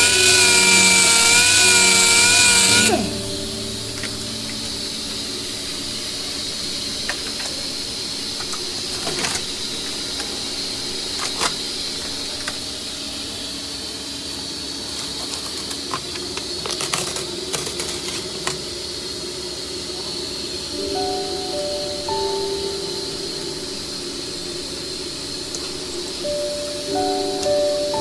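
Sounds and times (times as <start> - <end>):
low hum: 0.0 - 13.5, 20.8 - 28.0
steady hiss: 0.0 - 28.0
foil and plastic bag crinkling: 15.2 - 18.4.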